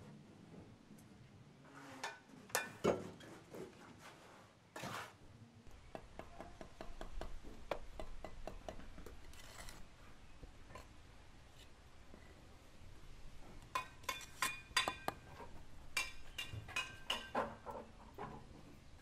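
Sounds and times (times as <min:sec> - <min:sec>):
trowel scrape: 0:04.0 - 0:05.2, 0:09.1 - 0:09.9.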